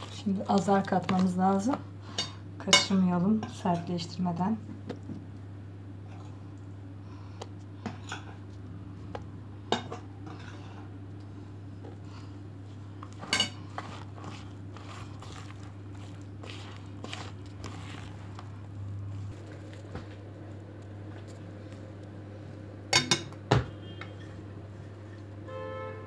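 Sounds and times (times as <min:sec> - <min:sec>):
hand squishing dough: 0:00.0 - 0:01.8, 0:11.7 - 0:22.5.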